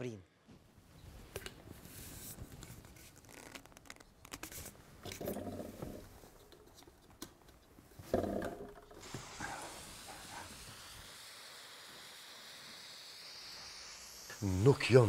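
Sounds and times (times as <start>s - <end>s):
faint scratching and rustling: 1.0s - 8.2s.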